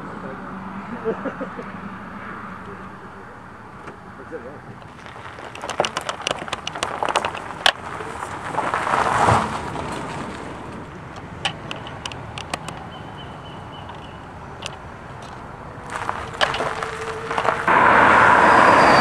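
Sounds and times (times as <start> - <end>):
tyres crunching over gravel: 3.7 - 18.0
stones popping: 4.8 - 12.9, 13.9 - 17.7.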